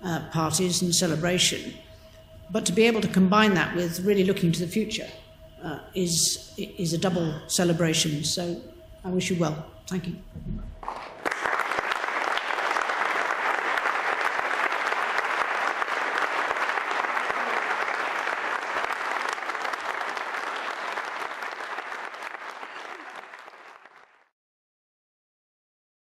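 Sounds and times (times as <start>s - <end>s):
audience applauding: 10.8s - 24.3s.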